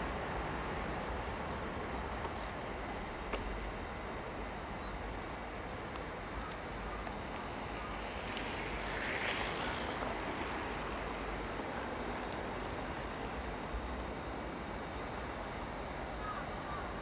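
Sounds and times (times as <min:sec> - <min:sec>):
distant trains rumbling: 0:00.0 - 0:17.0.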